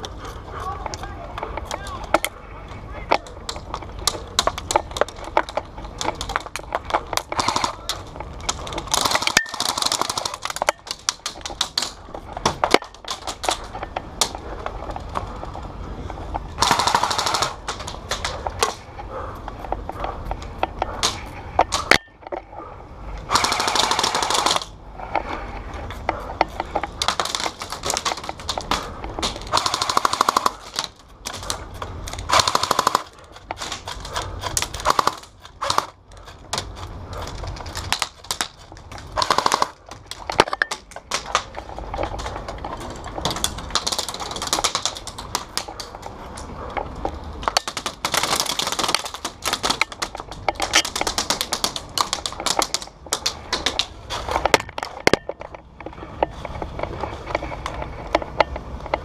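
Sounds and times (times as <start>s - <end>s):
airsoft full-auto bursts: 7.4s - 7.9s, 8.8s - 11.1s, 16.6s - 18.3s, 23.3s - 24.7s, 29.4s - 30.9s, 32.3s - 36.0s, 39.2s - 39.8s.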